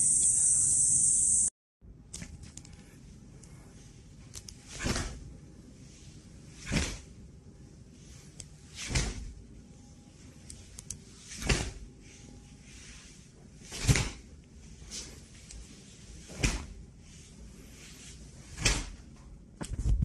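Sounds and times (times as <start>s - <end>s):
high insect chirring: 0.0s - 1.5s.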